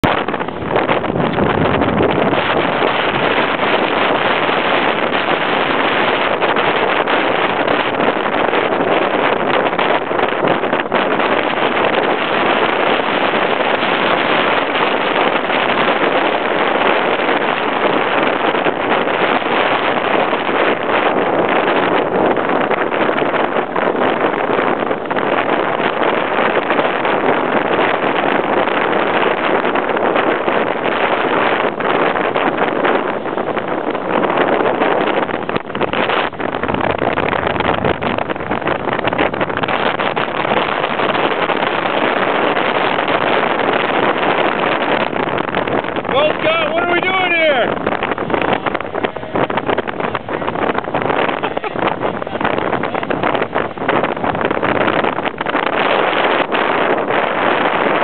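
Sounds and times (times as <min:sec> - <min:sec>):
wind buffeting microphone: 0:00.0 - 0:58.0
whitewater rapids rushing: 0:39.9 - 0:58.0.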